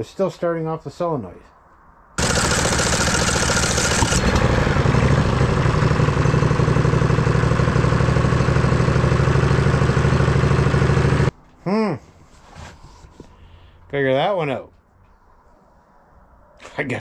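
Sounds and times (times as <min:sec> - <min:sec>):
engine running steadily: 0:02.2 - 0:11.3
starter motor cranking: 0:02.2 - 0:11.3.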